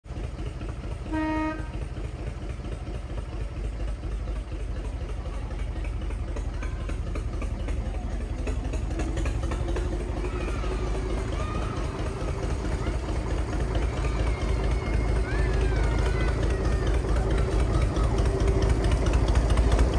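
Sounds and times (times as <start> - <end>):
locomotive engine rumbling: 0.0 - 19.9
locomotive horn toot: 1.0 - 1.9.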